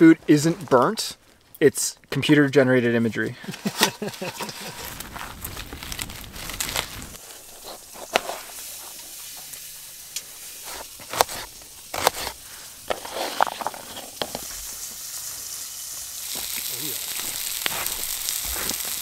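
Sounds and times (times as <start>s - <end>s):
low steady hiss: 0.0s - 19.0s
knife cutting onion: 10.6s - 13.4s.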